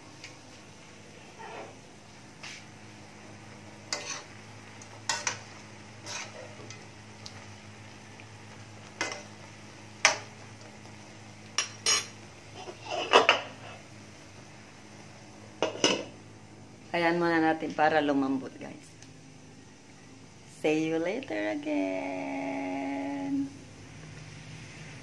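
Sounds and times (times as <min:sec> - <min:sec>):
metal utensil scraping wok: 0:03.9 - 0:04.4, 0:05.0 - 0:06.8, 0:11.6 - 0:13.8.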